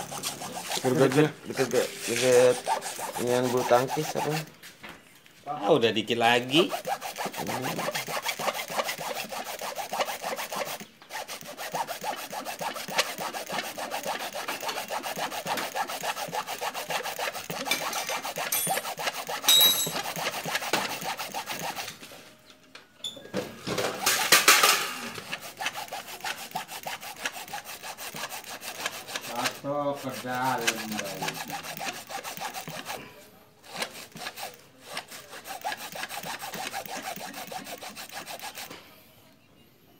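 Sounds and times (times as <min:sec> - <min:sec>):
hacksaw sawing through plastic: 0:00.0 - 0:04.5, 0:06.4 - 0:22.0, 0:23.6 - 0:38.8.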